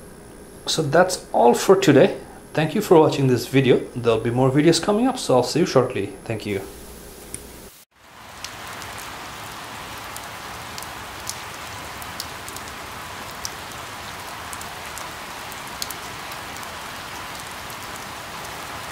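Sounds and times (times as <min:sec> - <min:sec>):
rain falling on leaves: 0:07.9 - 0:18.9.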